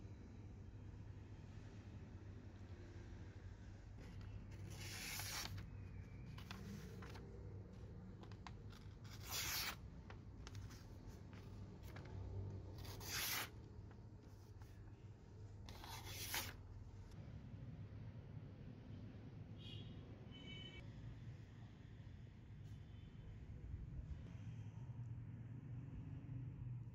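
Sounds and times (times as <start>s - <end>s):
knife slicing paper: 4.6s - 5.6s, 9.0s - 9.8s, 12.8s - 13.5s, 15.7s - 16.6s.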